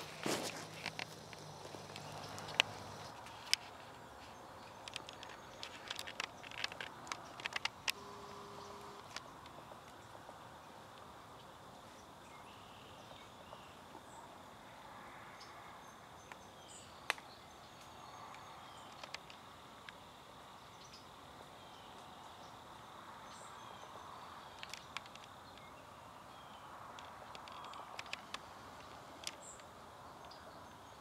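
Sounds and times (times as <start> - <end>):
insect trill: 0.0 - 13.8
faint bird chirps: 11.4 - 14.3.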